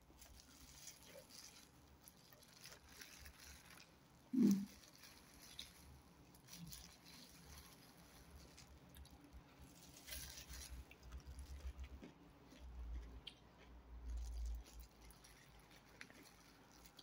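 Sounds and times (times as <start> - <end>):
plastic glove crinkling: 0.0 - 12.7, 14.1 - 17.0
chewing and eating: 0.0 - 17.0.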